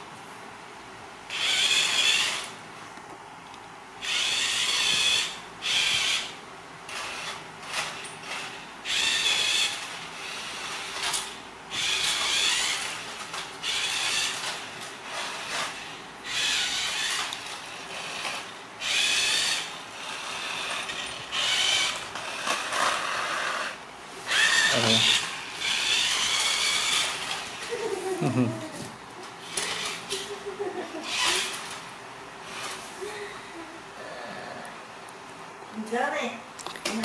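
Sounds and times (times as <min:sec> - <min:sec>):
toy car motor whirring: 0:01.3 - 0:02.6, 0:04.0 - 0:28.1, 0:29.5 - 0:31.8, 0:32.4 - 0:32.9.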